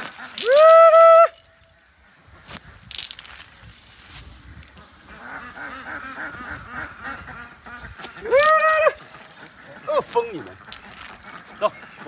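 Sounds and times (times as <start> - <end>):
corn kernels rustling in a sack: 0.0 - 1.6, 2.2 - 6.8, 7.6 - 11.5
ducks quacking: 4.5 - 12.0.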